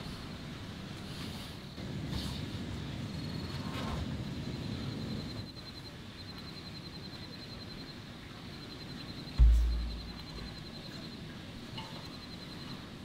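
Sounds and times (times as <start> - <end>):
low rumble: 9.4 - 10.8.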